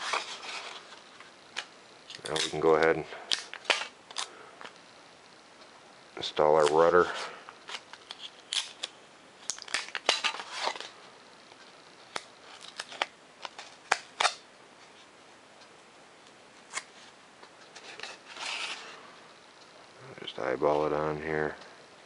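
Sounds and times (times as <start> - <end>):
rasping rustle of paper: 17.8 - 19.0.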